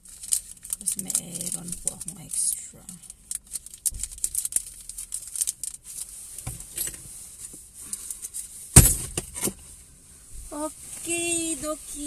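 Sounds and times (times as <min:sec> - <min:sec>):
packaging crinkling: 0:00.0 - 0:06.2
loud thump: 0:08.8 - 0:09.6.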